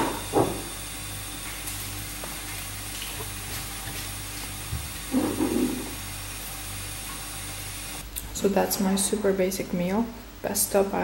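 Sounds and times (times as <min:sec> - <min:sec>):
steady low hum: 0:00.0 - 0:11.0
ceramic mug knocking and scraping: 0:05.1 - 0:05.9.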